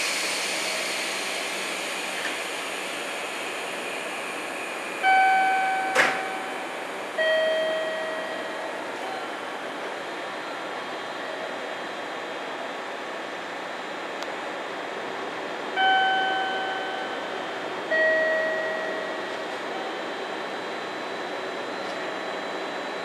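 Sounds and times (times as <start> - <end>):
electric train hum: 0.0 - 23.0
electronic chime tones: 5.0 - 6.6, 7.2 - 9.3, 17.9 - 19.3.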